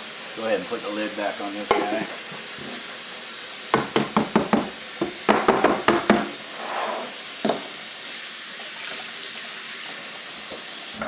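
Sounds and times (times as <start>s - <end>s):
knocks on metal paint can lid: 3.7s - 6.3s.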